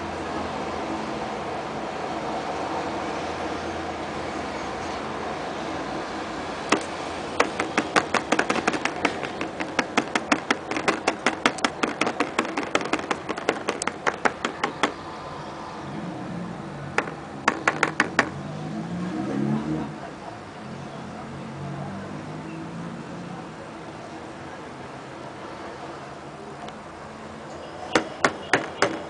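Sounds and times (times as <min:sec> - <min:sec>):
fingertip tapping on thick fluid: 0:06.7 - 0:15.0.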